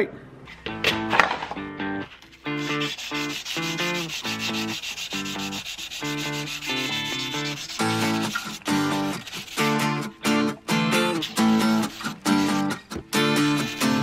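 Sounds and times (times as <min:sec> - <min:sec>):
sandpaper rasping on steel: 0:02.4 - 0:10.2, 0:11.0 - 0:14.0.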